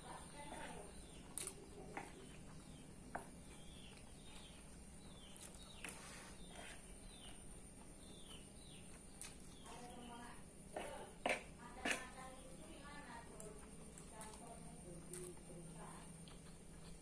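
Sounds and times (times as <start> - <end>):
bird chirping: 0.0 - 10.4.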